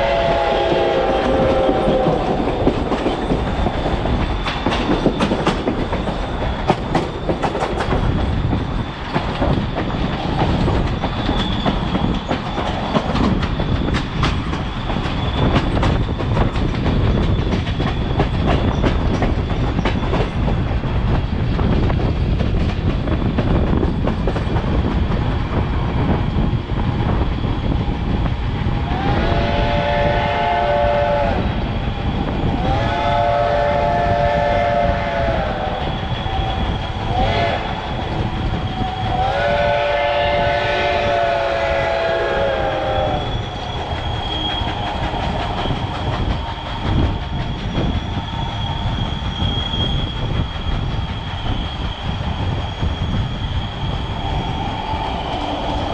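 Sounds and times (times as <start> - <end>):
steam locomotive chime whistle: 0.0 - 2.4, 38.7 - 50.2
train coach rolling on rails: 0.0 - 55.9.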